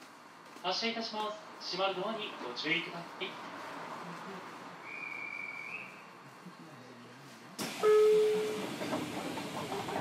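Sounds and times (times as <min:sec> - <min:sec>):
short high whistle: 0:04.8 - 0:06.1
train doors closing: 0:07.6 - 0:10.0.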